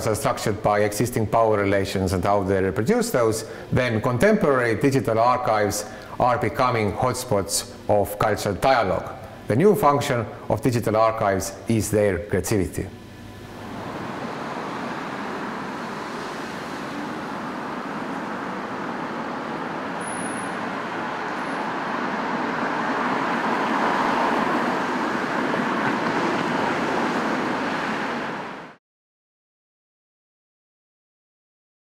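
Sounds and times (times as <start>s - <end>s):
passing vehicles hiss: 3.2s - 3.8s, 13.5s - 28.8s.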